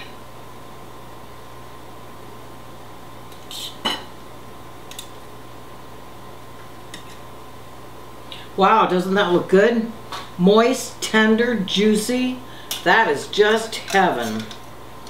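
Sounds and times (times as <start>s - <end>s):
faint steady hum: 0.0s - 15.0s
utensils clinking against plates: 12.7s - 12.9s, 13.5s - 14.7s.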